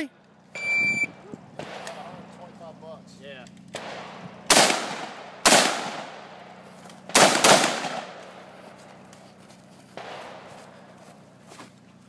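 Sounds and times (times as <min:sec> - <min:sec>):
gunshot echo: 0:01.6 - 0:02.3, 0:03.8 - 0:06.5, 0:07.1 - 0:08.4, 0:10.0 - 0:10.9
rifle gunshots: 0:01.6 - 0:02.4, 0:03.7 - 0:08.6, 0:10.0 - 0:11.0.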